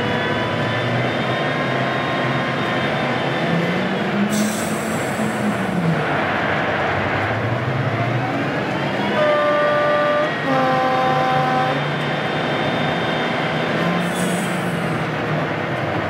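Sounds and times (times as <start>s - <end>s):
locomotive running noise: 0.0s - 16.0s
two-tone locomotive horn: 9.0s - 12.1s.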